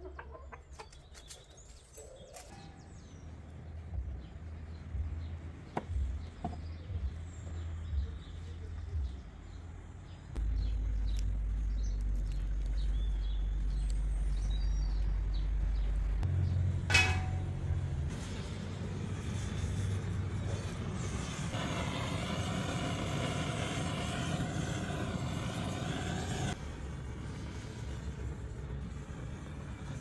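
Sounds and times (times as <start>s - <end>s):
small birds chirping: 0.0s - 16.6s
steady low rumble: 3.7s - 30.0s.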